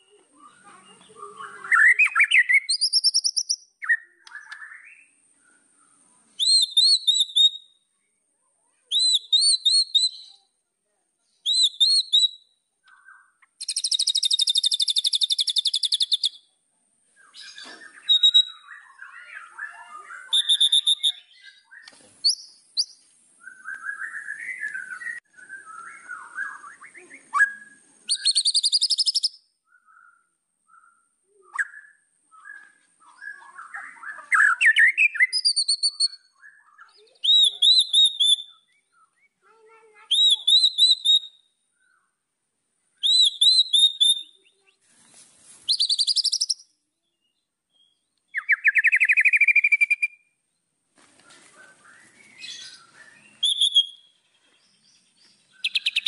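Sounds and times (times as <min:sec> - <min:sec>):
bird singing whistled song: 0:00.0 - 0:07.9, 0:08.9 - 0:10.5, 0:11.4 - 0:16.5, 0:17.1 - 0:39.4, 0:40.1 - 0:42.2, 0:43.0 - 0:44.8, 0:45.6 - 0:50.6, 0:51.6 - 0:56.0
fast bird trill: 0:01.4 - 0:04.0, 0:06.4 - 0:07.7, 0:13.6 - 0:16.4, 0:17.4 - 0:22.9, 0:27.4 - 0:29.4, 0:33.2 - 0:38.6, 0:40.1 - 0:41.4, 0:43.0 - 0:44.4, 0:45.7 - 0:46.6, 0:48.4 - 0:50.2, 0:52.2 - 0:54.2, 0:55.5 - 0:56.0.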